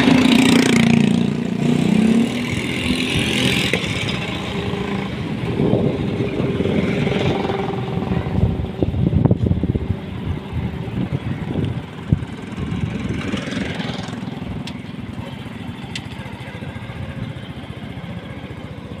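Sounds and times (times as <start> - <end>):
motorcycle engine putter: 11.5 - 18.9.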